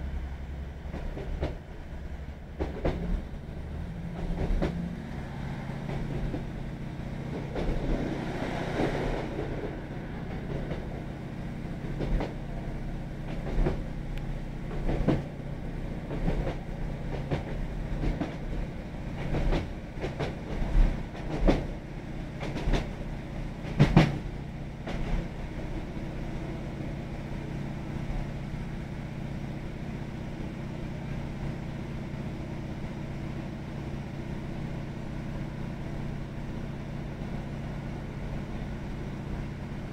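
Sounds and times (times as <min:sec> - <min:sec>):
train diesel engine drone: 0:00.0 - 0:39.9
wheels clacking over rail joints: 0:04.0 - 0:15.4, 0:23.6 - 0:25.4.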